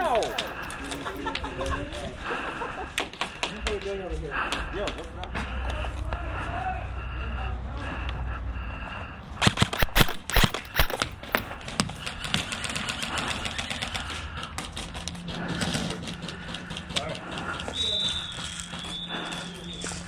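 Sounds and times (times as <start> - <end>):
airsoft guns firing: 9.4 - 11.5.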